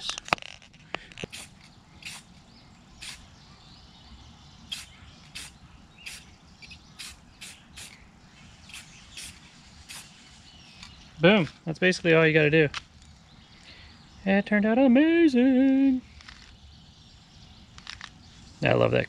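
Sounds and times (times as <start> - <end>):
aerosol can spraying: 1.3 - 2.3, 3.0 - 3.2, 4.7 - 8.0, 8.6 - 10.3.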